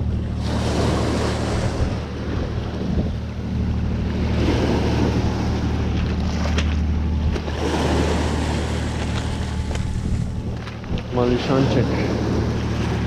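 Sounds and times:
ferry engines droning: 0.0s - 13.0s
small waves washing over pebbles: 5.8s - 13.0s.

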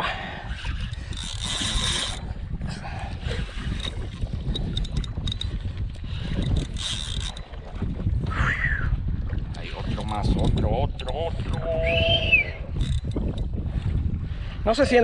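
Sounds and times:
wind rumble on microphone: 0.0s - 15.0s
fishing reel cranking: 0.4s - 2.3s, 3.2s - 7.6s, 9.8s - 13.5s.

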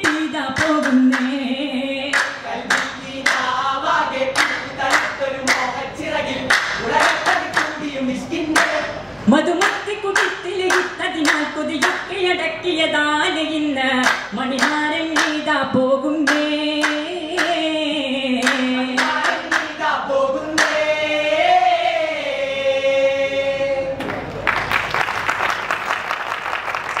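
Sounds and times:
rhythmic hand claps: 0.0s - 9.0s, 9.6s - 12.2s, 14.0s - 15.5s, 16.2s - 17.8s, 18.4s - 21.6s, 24.0s - 27.0s
group singing in unison: 0.0s - 12.6s, 13.9s - 24.2s
audience applause: 24.1s - 27.0s.

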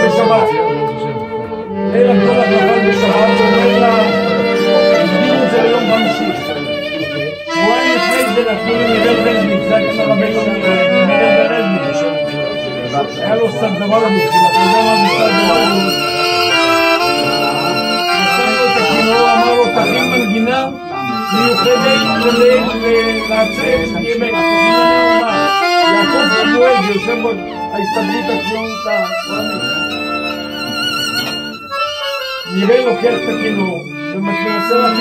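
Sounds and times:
accompanying instruments: 0.0s - 35.0s
violin playing a melody: 0.0s - 35.0s.

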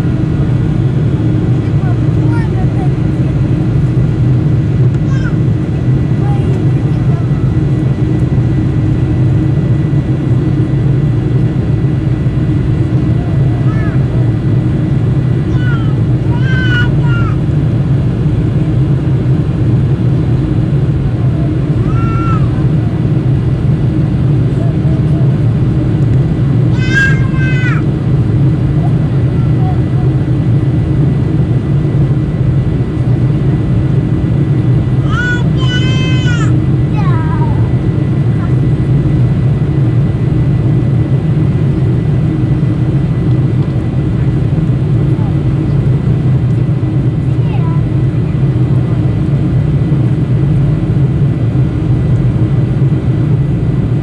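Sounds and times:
jet engine roar in cabin: 0.0s - 54.0s.

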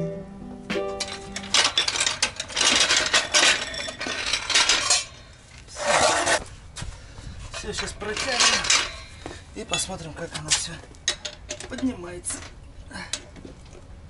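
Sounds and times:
metal floor jack clattering: 1.0s - 5.2s, 7.6s - 9.0s.

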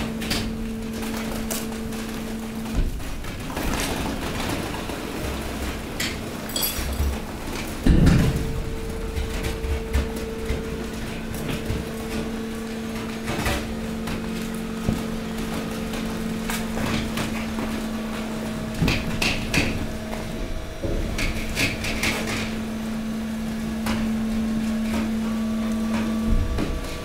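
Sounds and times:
hydraulic pump hum: 0.0s - 27.0s
rubbish crackling and knocking: 0.0s - 27.0s.

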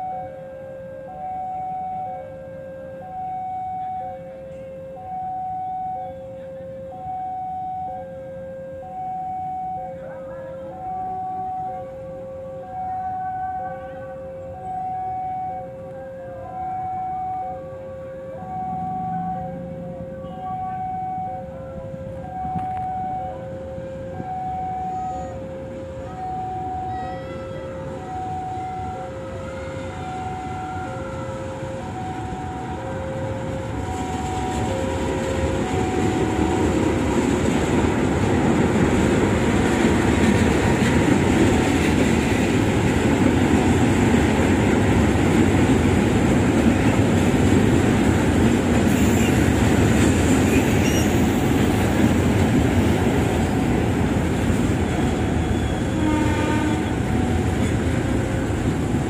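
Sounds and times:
train horn: 0.0s - 37.6s, 48.8s - 51.9s, 54.6s - 58.7s
train wheels on rails: 27.8s - 59.0s.

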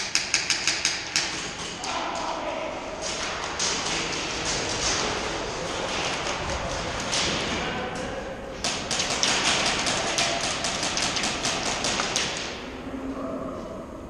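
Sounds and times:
airsoft guns firing: 8.6s - 12.6s.

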